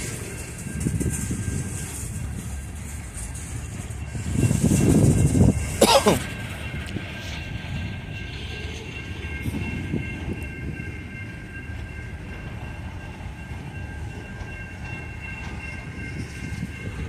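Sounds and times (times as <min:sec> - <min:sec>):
freight train wheels rumbling: 0:00.0 - 0:17.0.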